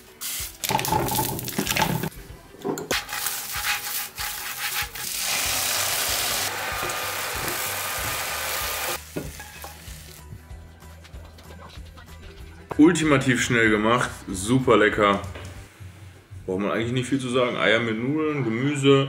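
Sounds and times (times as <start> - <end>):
frying sizzle: 2.9 - 10.3.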